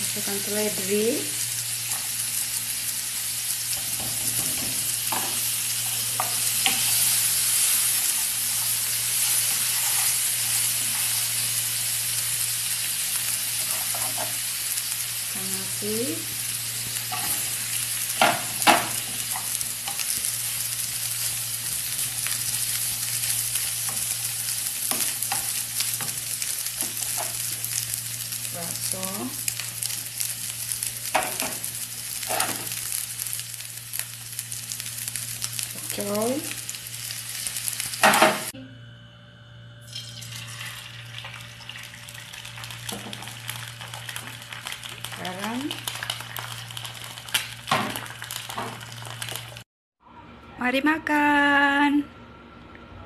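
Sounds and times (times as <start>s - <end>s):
rice sizzling in hot oil: 0.0s - 38.6s, 39.9s - 49.6s
steady low hum: 0.0s - 41.6s.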